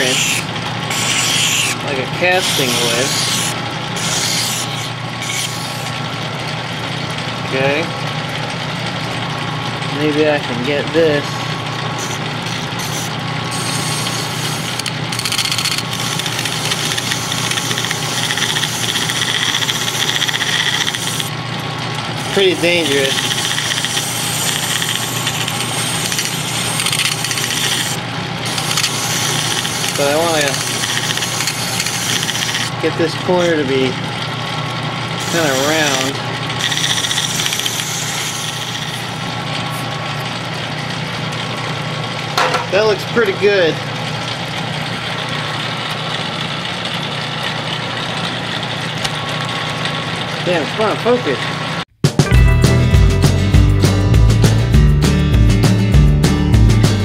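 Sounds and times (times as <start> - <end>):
file scraping spinning metal: 0.0 - 6.1, 10.5 - 21.3, 22.0 - 33.9, 35.1 - 40.2
metal lathe humming: 0.0 - 6.6, 9.6 - 41.5.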